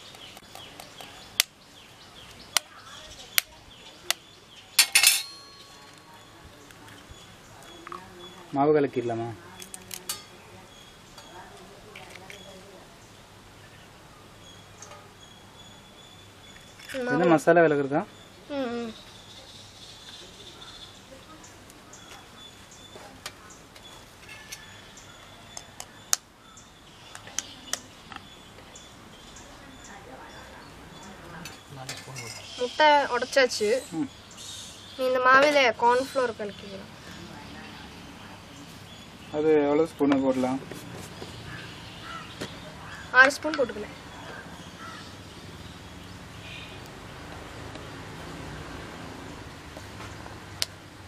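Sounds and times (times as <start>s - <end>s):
knife clinking with short ring: 4.8s - 6.0s.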